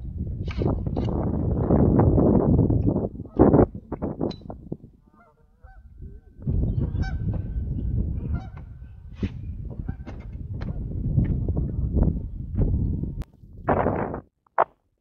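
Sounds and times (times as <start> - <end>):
low wind rumble: 0.0 - 14.3
geese honking: 5.0 - 5.9, 6.9 - 7.3, 8.2 - 8.7.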